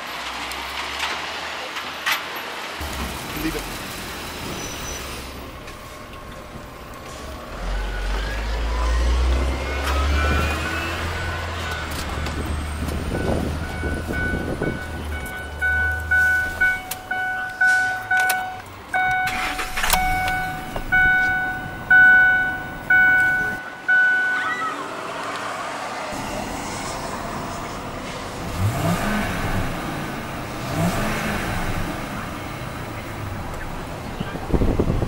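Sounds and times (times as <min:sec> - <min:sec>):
truck engine revving: 0:06.5 - 0:23.7, 0:24.4 - 0:35.0
warning chime tones: 0:12.6 - 0:24.9.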